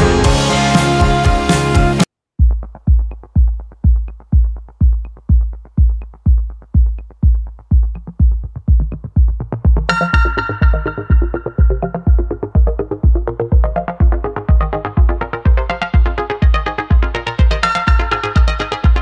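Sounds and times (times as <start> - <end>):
dense music track: 0.0 - 19.0
drum machine beat: 0.0 - 19.0
synth: 9.8 - 19.0.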